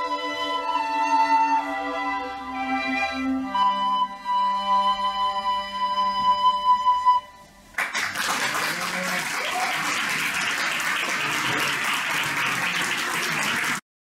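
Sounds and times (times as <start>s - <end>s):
audience applauding: 7.8s - 13.8s.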